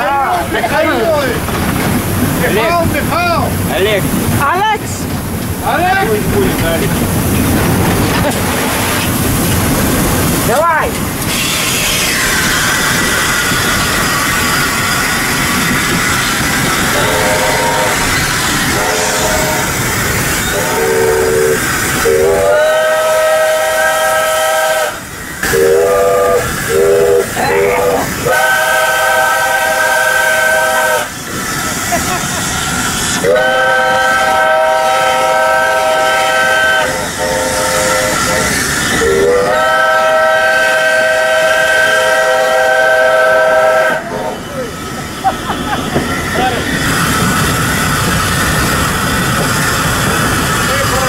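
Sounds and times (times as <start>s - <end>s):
steam hissing: 1.2s - 51.0s
steam whistle blasts: 11.3s - 13.6s, 16.9s - 19.8s, 20.4s - 31.1s, 33.2s - 44.3s.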